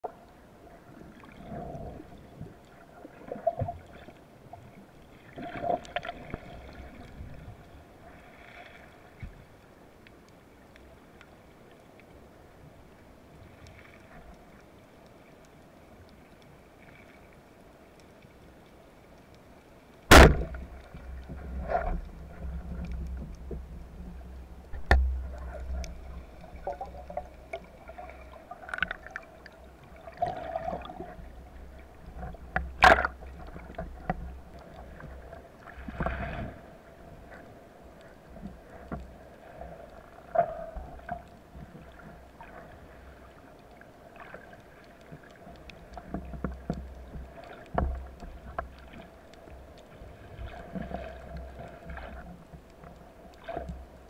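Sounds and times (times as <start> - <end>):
underwater rumble: 0.0 - 54.0
speargun crack underwater: 20.1 - 20.8, 24.7 - 26.0, 32.5 - 34.2.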